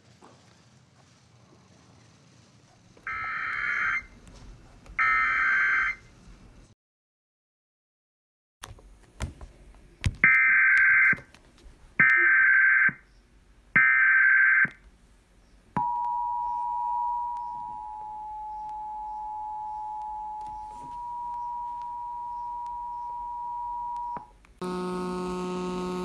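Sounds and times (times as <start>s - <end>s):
two-tone alert signal: 15.8s - 24.2s
buzzy electrical hum: 24.6s - 26.0s.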